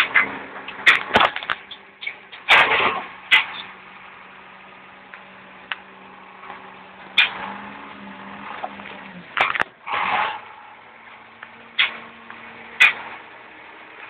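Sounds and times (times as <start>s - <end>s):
loud clanks and knocks: 0.0s - 3.7s, 8.4s - 10.6s
backhoe engine running: 0.0s - 14.0s.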